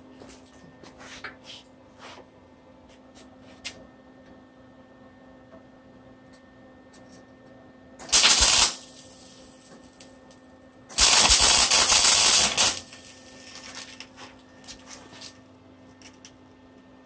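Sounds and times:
arc welding crackling: 0:08.0 - 0:10.3, 0:10.9 - 0:15.4.

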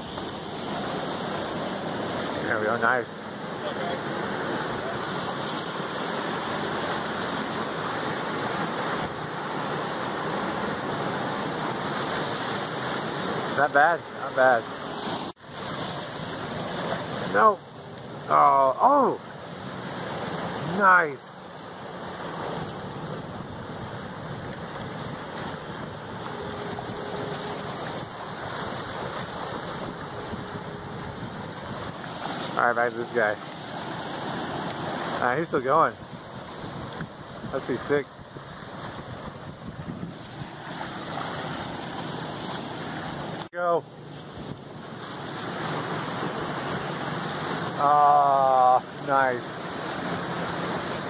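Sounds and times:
ocean surf breaking: 0:00.0 - 0:51.0
wind buffeting microphone: 0:22.2 - 0:32.5, 0:35.9 - 0:42.4.

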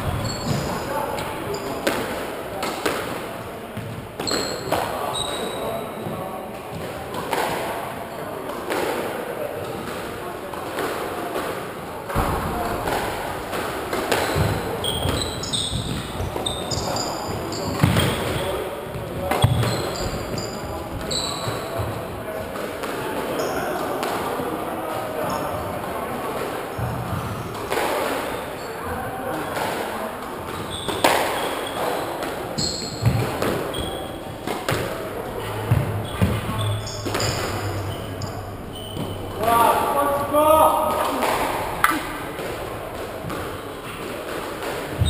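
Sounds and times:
shoes squeaking on wooden floor: 0:00.0 - 0:01.8, 0:03.8 - 0:06.9, 0:14.1 - 0:22.1, 0:30.4 - 0:40.3
racket hitting squash ball: 0:08.6 - 0:23.1, 0:29.5 - 0:45.0
squash ball knocks: 0:12.1 - 0:16.4.

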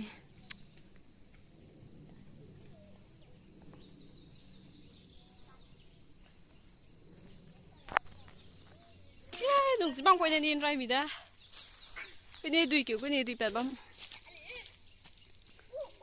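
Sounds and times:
steady high-pitched hum: 0:00.0 - 0:10.0
distant bird calls: 0:00.0 - 0:16.0.

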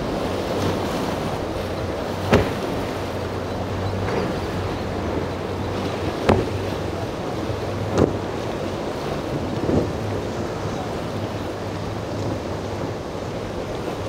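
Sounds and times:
hull slapping water: 0:00.0 - 0:14.0
outboard motors droning: 0:00.0 - 0:14.0
wind: 0:00.0 - 0:14.0.

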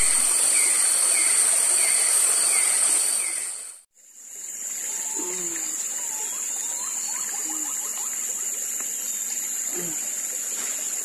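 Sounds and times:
high insect drone: 0:00.0 - 0:11.0
birdlike calls: 0:04.9 - 0:08.6.

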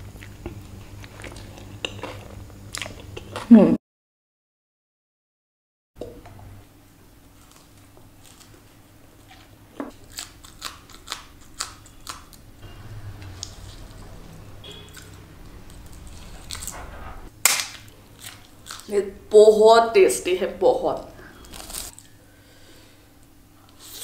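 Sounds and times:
person chewing crunchy food: 0:00.0 - 0:03.5, 0:07.3 - 0:08.6, 0:09.2 - 0:14.1, 0:14.7 - 0:16.8, 0:17.5 - 0:19.0, 0:21.3 - 0:22.2.

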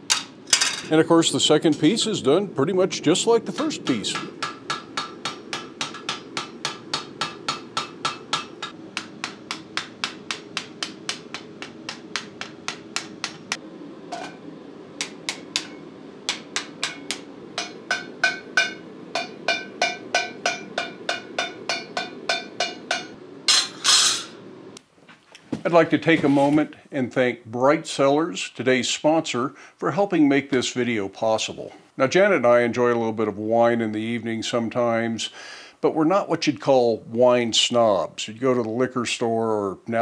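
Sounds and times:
hammer ringing on anvil: 0:04.1 - 0:13.6, 0:15.0 - 0:24.2.

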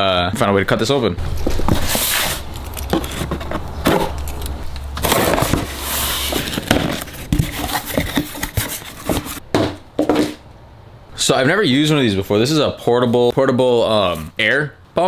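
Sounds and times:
cardboard and tape tearing: 0:01.3 - 0:09.4.

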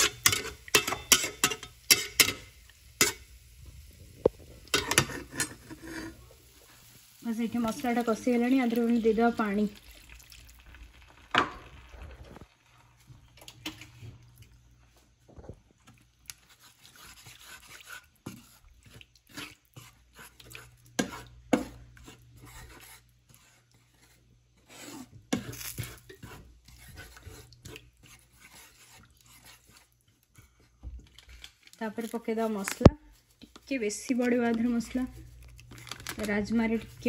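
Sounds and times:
spatula stirring in frying pan: 0:00.0 - 0:10.1, 0:15.8 - 0:31.5.

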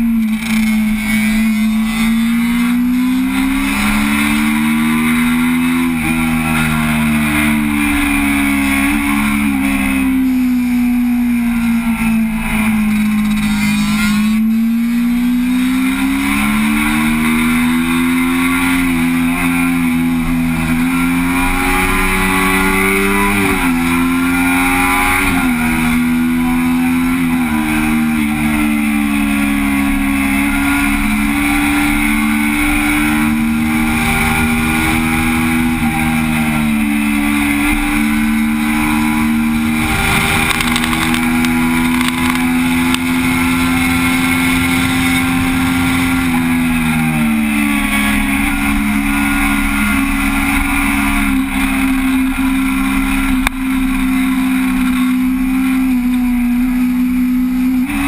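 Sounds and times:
motorcycle engine: 0:00.0 - 0:58.0
wind rushing: 0:38.0 - 0:46.9.

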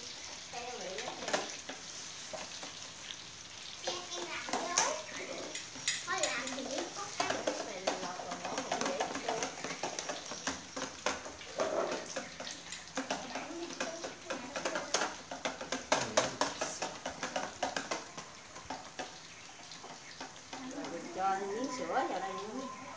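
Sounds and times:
hot oil crackling: 0:00.0 - 0:22.9
tongs clicking against pan: 0:03.8 - 0:21.5
voices chattering: 0:03.8 - 0:22.9.

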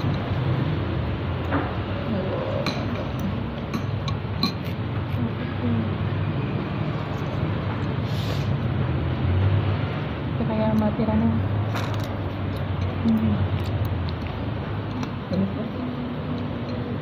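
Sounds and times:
metal spoon clinking against bowl: 0:02.5 - 0:04.8, 0:16.4 - 0:17.0.

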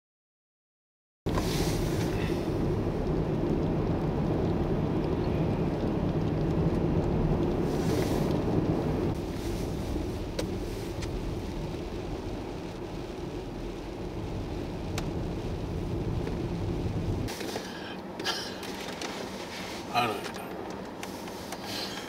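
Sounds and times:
tyres hissing through snow: 0:01.3 - 0:02.6, 0:07.6 - 0:08.4, 0:09.1 - 0:13.8, 0:17.1 - 0:20.4, 0:21.0 - 0:22.0
engine and road rumble: 0:01.3 - 0:22.0.

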